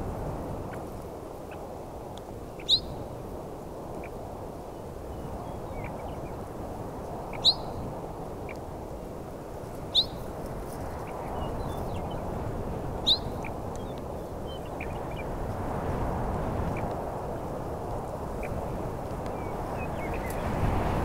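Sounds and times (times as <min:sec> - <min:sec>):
bird sharp downslurred calls: 0:07.3 - 0:07.8, 0:09.9 - 0:10.2, 0:13.0 - 0:15.0
faint bird chirps: 0:07.3 - 0:07.8, 0:09.9 - 0:10.2, 0:13.0 - 0:15.2
wind rushing: 0:09.8 - 0:21.0.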